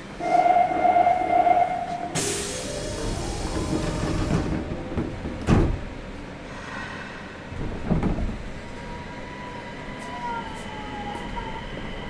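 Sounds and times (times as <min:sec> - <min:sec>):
train running noise: 0:00.0 - 0:12.0
train clunk: 0:01.7 - 0:06.2, 0:07.5 - 0:08.8.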